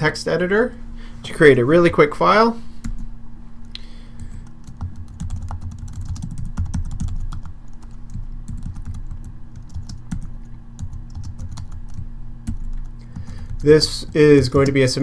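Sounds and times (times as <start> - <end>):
low hum: 0.0 - 15.0
keyboard keys clicking: 4.6 - 14.9.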